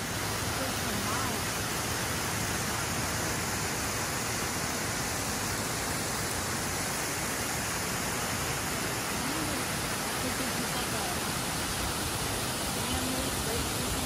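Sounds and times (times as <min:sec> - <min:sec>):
water rushing over weir: 0:00.0 - 0:14.0.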